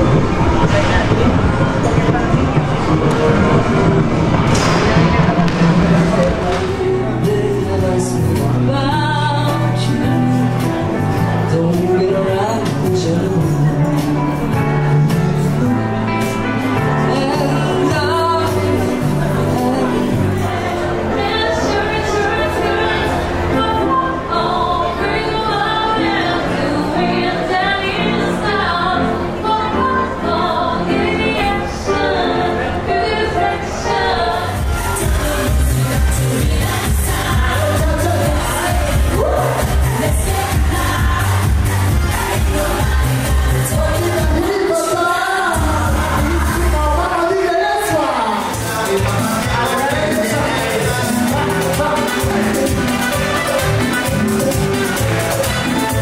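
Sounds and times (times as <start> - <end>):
grand piano: 0.0 - 37.0
live band with guitar: 0.0 - 56.0
woman singing into microphone: 6.3 - 48.6.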